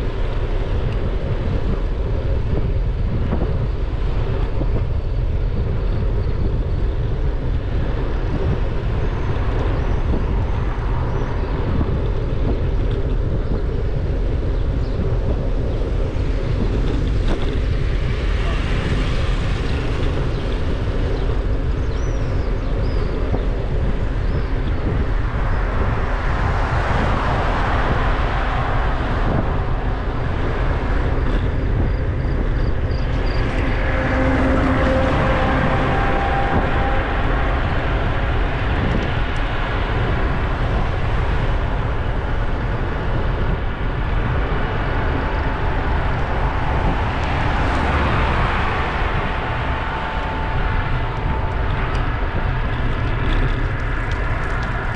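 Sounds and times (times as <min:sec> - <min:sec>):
vehicle road noise: 0:00.0 - 0:54.9
wind rumble on microphone: 0:00.0 - 0:54.9.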